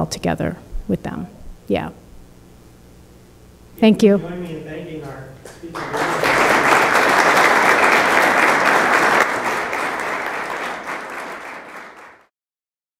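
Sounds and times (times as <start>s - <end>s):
audience applauding: 5.5s - 12.3s.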